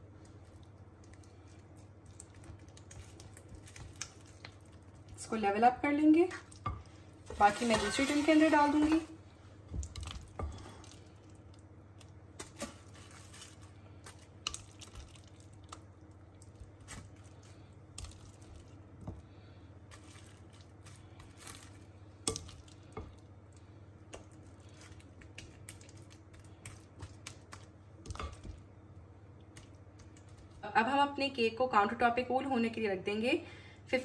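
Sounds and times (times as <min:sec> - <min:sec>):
low steady hum: 0:00.0 - 0:34.0
spatula scraping a glass bowl: 0:07.4 - 0:09.0.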